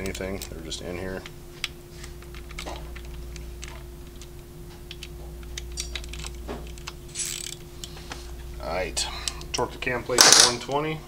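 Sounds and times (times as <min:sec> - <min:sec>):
steady hum: 0:00.0 - 0:11.0
hand ratchet clicking: 0:04.9 - 0:08.0.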